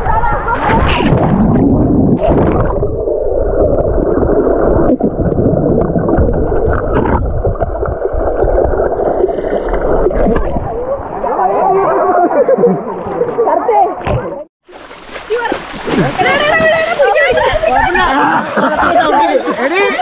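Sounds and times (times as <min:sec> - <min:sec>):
underwater air bubbles: 0:00.7 - 0:11.4.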